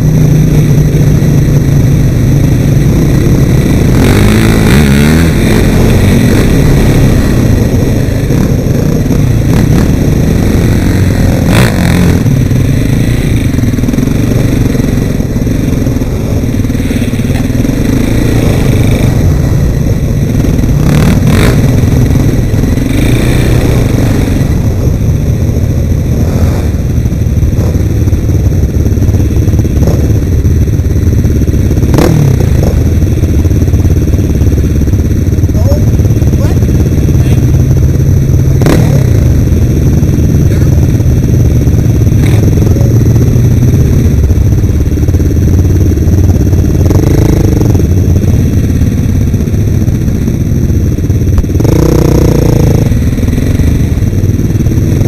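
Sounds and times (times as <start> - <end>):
atv engine running loudly: 0.0 - 55.0
sharp knocks over rough ground: 29.8 - 30.0.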